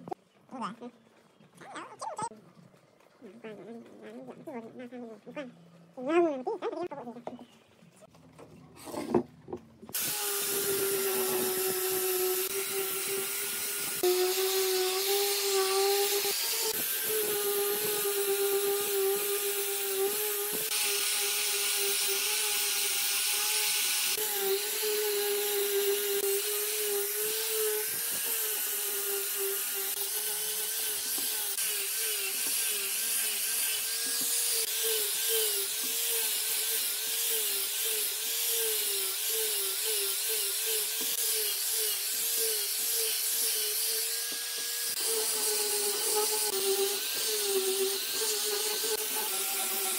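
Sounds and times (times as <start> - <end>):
angle grinder sanding wood: 9.9 - 49.9.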